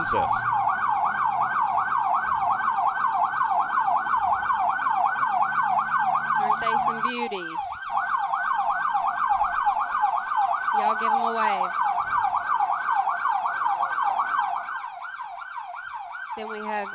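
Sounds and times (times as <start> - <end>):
electronic siren yelping: 0.0 - 16.9.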